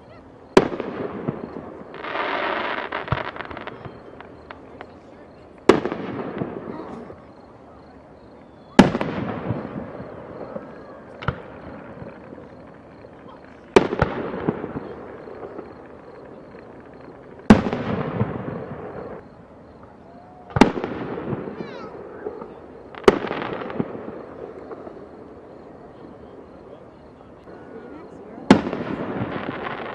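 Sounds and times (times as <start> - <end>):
fireworks booming: 0.0 - 29.9
smaller firework bang: 8.7 - 12.4, 16.5 - 19.4, 20.4 - 25.0.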